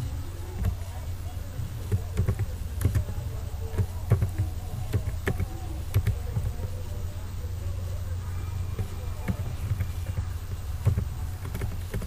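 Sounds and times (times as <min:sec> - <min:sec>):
steady low hum: 0:00.0 - 0:12.0
keyboard keys clicking: 0:00.6 - 0:06.9, 0:08.8 - 0:12.0.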